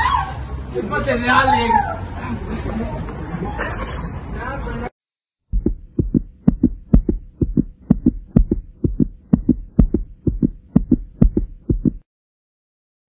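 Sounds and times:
heartbeat thumps: 5.5s - 12.0s.

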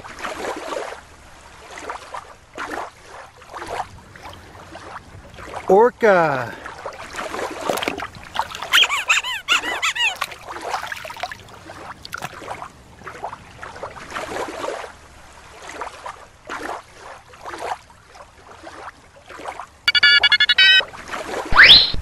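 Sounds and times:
water splashing: 0.0s - 22.0s
orca whistles and squeals: 8.6s - 10.3s, 21.6s - 22.0s.

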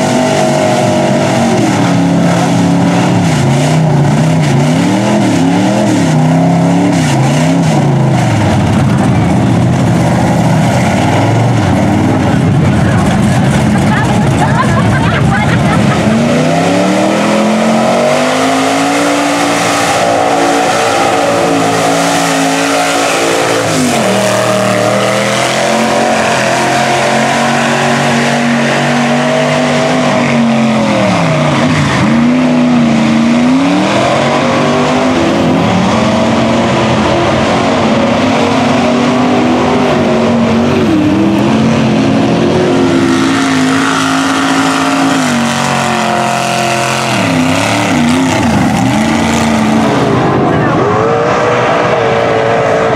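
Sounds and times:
truck engine at high revs: 0.0s - 52.9s
tyres spraying mud: 9.6s - 37.2s.

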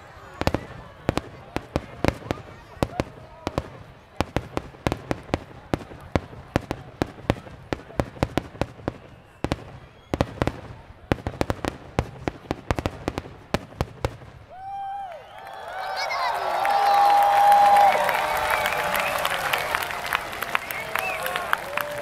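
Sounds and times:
people cheering: 0.0s - 4.3s, 14.5s - 22.0s
fireworks bangs and crackles: 0.0s - 15.0s
person whooping: 14.5s - 20.1s.

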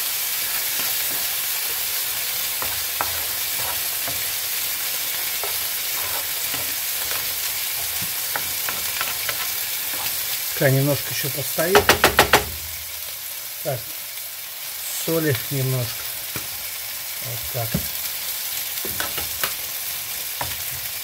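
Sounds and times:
sauce sizzling in frying pan: 0.0s - 21.0s
spatula scraping and tapping pan: 0.6s - 10.4s, 18.8s - 19.6s.

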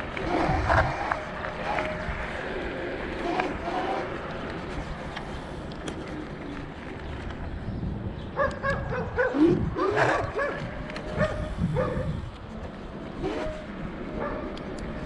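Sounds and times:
wind noise rumble: 0.0s - 15.0s
dog barking: 8.4s - 12.1s.

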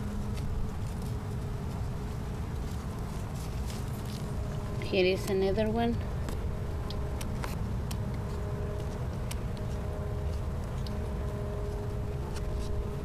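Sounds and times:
hand brushing plant leaves: 0.0s - 6.5s, 7.1s - 13.0s
steady low rumble: 0.0s - 13.0s
faint two-note hum: 3.7s - 13.0s.

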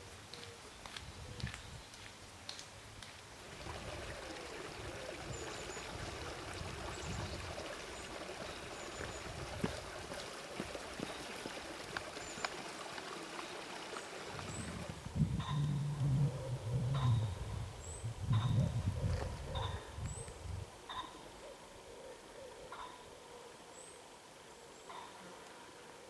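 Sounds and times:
stream trickling over stones: 2.5s - 15.4s.

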